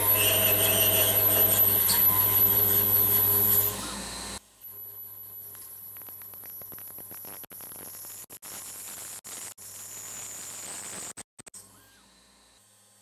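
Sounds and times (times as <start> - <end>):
spindle whine: 0.0 - 4.4.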